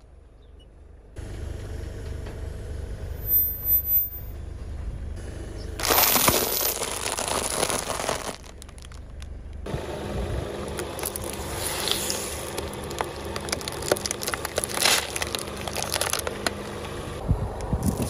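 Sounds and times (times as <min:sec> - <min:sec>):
low rumble: 0:02.5 - 0:18.0
plastic bottle cracking and bursting: 0:05.8 - 0:09.3, 0:10.8 - 0:16.5
plastic packet crinkling under tyre: 0:05.8 - 0:09.4, 0:10.8 - 0:16.6.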